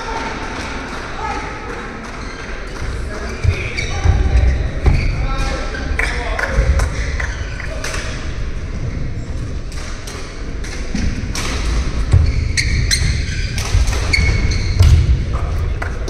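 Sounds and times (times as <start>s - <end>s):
shoes squeaking on court floor: 2.0s - 7.8s, 12.0s - 16.0s
rackets hitting shuttlecock: 9.7s - 16.0s.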